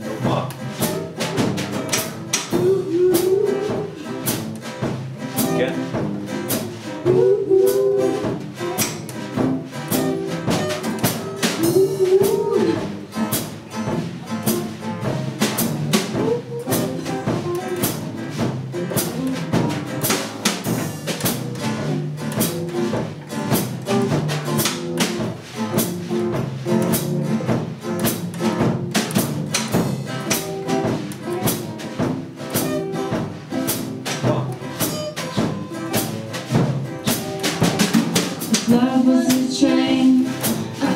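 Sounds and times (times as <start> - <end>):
acoustic bass guitar: 0.0 - 40.9
drum kit steady beat: 0.0 - 40.9
strummed acoustic guitars: 0.0 - 40.9.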